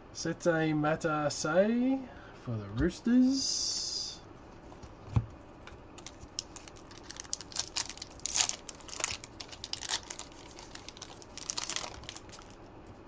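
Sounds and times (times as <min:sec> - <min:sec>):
trading cards rustling: 0:06.0 - 0:12.6.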